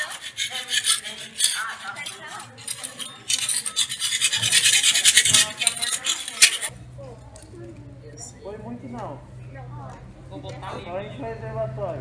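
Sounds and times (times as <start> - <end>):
metal scraper scraping paint: 0.0 - 6.7
faint voices: 0.0 - 10.4.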